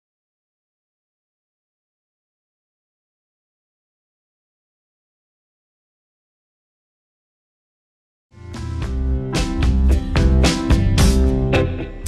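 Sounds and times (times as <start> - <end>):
drum hits: 8.6 - 12.0.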